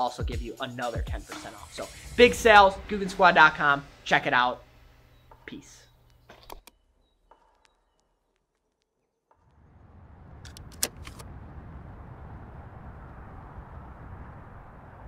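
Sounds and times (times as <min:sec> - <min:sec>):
sharp clicks: 0:06.0 - 0:06.8, 0:10.5 - 0:11.2.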